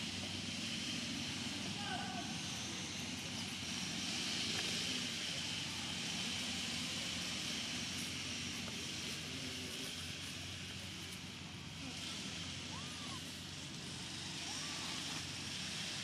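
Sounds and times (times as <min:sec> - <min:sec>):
low rumble of distant traffic: 0:00.0 - 0:16.0
steady high hiss: 0:00.0 - 0:16.0.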